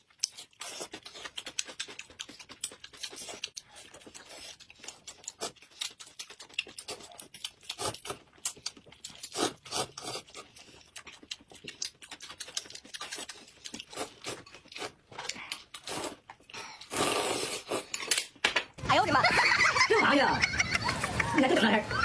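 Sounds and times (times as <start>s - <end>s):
chewing and mouth smacks: 0.0s - 17.0s
noodles being slurped: 0.0s - 18.2s.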